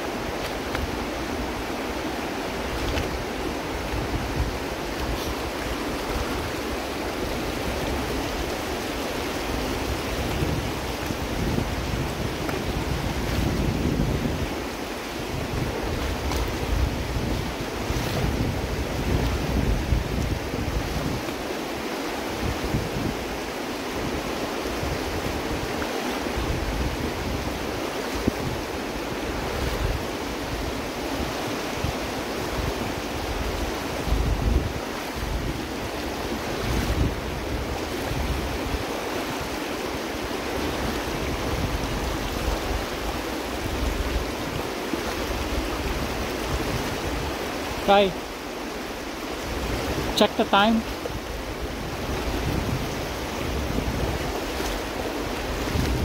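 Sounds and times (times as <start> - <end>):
wind buffeting microphone: 0.0 - 21.5, 22.2 - 56.0
river rushing over stones: 0.0 - 56.0.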